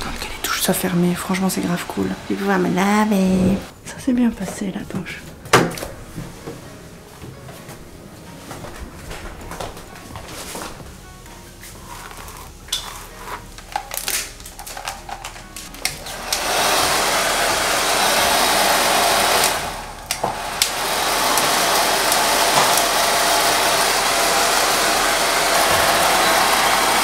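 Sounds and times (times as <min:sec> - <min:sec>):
hair dryer blowing: 0:00.0 - 0:03.7, 0:15.8 - 0:27.0
towel rubbing wet hair: 0:11.6 - 0:13.5.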